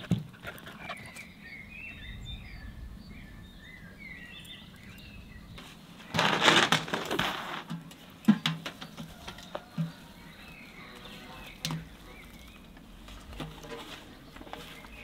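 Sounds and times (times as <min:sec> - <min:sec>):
faint bird chirps: 0:00.4 - 0:06.2
rough rustling and scraping: 0:04.3 - 0:15.0.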